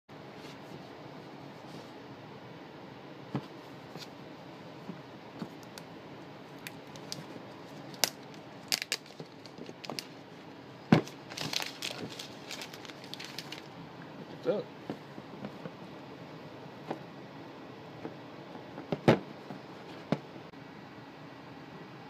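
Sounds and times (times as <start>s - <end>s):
plastic and cardboard crinkling: 6.9s - 10.2s, 10.9s - 13.7s.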